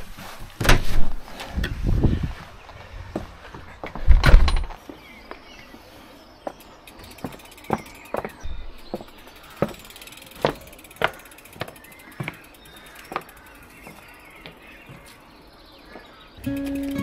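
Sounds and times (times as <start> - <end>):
cleated shoes clicking on stone: 6.4 - 15.2.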